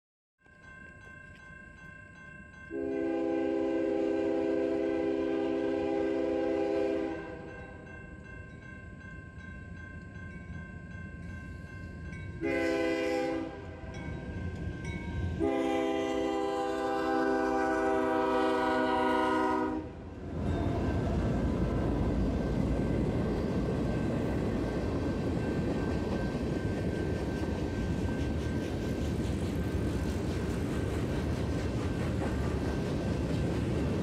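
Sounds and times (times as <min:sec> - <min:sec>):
crossing signal bell ringing: 0:00.4 - 0:03.7, 0:07.2 - 0:16.0, 0:20.2 - 0:28.8
locomotive air horn blasts: 0:02.7 - 0:07.5, 0:12.4 - 0:13.9, 0:15.4 - 0:20.1
train rumble: 0:02.8 - 0:34.0.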